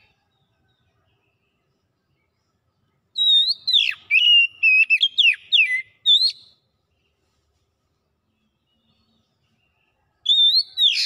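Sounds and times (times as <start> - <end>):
bird singing whistled notes: 0.0 - 7.2, 8.3 - 11.0.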